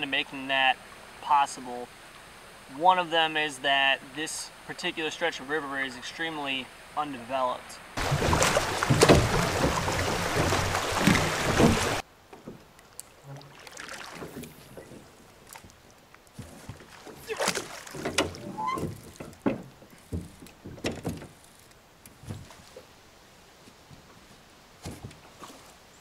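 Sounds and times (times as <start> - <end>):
oars knocking on metal boat: 8.0 - 12.7, 16.4 - 21.4
oars splashing water: 8.0 - 23.0, 23.6 - 26.0.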